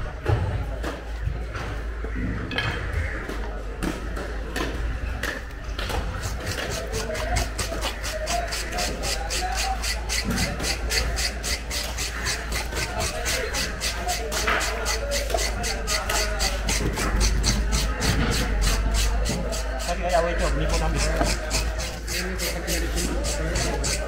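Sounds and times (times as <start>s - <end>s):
knife scraping fish skin: 5.9s - 24.0s.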